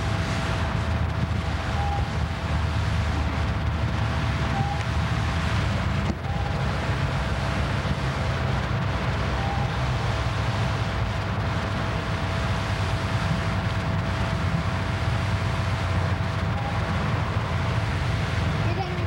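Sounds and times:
faint steady tone: 16.4s - 18.2s.

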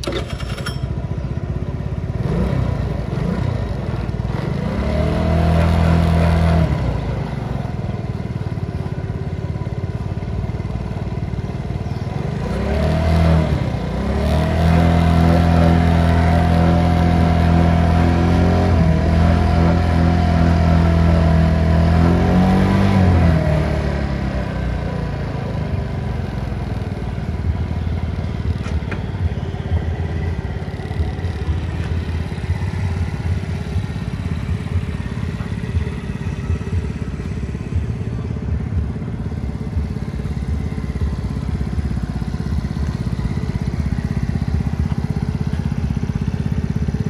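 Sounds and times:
scooter engine idling: 0.0s - 12.7s, 23.8s - 47.0s.

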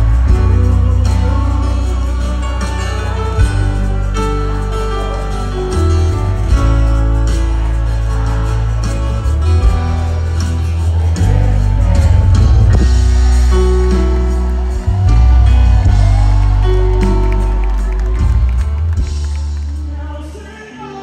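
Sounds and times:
person singing: 0.0s - 18.2s, 19.5s - 21.0s
loud worship music over pa: 0.0s - 21.0s.

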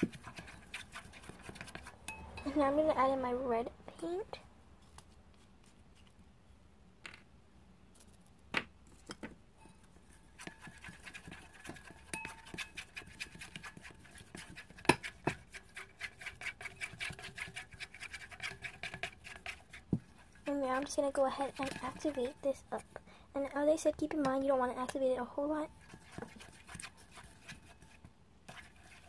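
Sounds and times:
stick stirring in metal bowl: 0.0s - 3.1s, 9.6s - 25.0s, 25.6s - 29.0s.

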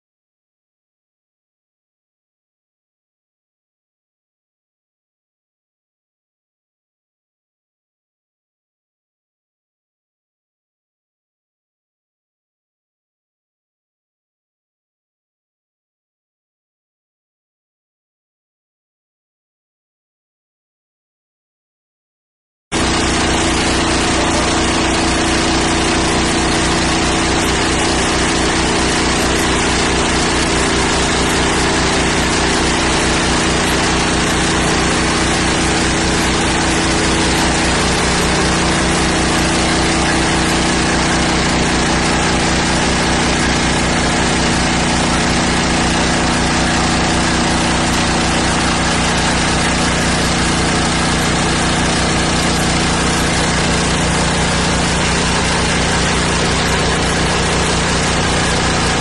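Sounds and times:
machine engine running steadily: 22.8s - 59.0s.

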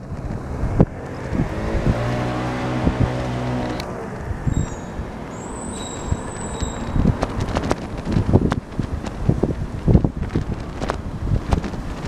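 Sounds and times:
vehicle engine passing by: 0.0s - 7.7s
street din: 0.0s - 12.0s.

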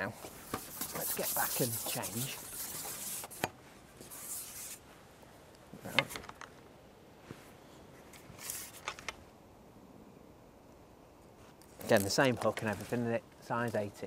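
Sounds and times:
fishing pole rubbing: 0.4s - 4.9s.

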